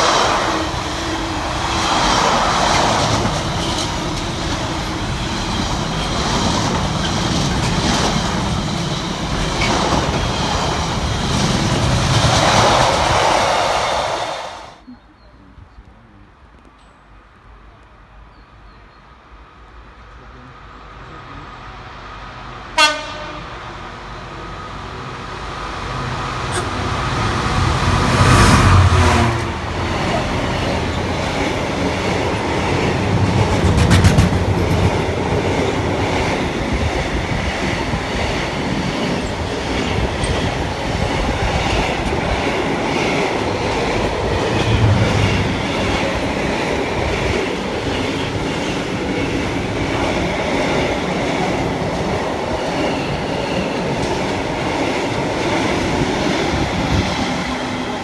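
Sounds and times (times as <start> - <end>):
train wheels clickety-clack: 0.0 - 13.6, 29.8 - 57.8
locomotive passing: 0.0 - 14.9, 20.1 - 58.0
train horn blast: 22.7 - 23.8, 26.5 - 26.9, 28.7 - 29.7.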